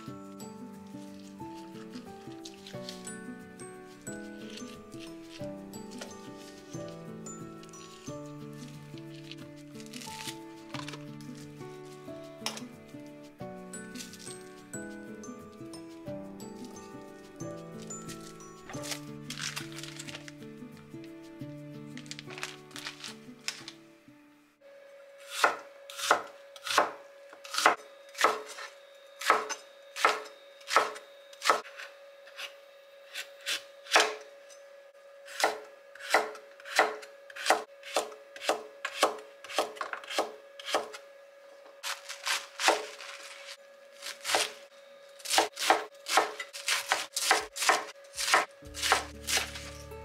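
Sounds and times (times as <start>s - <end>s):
knife chopping on wooden board: 25.3s - 31.7s, 41.8s - 43.2s, 45.3s - 49.6s.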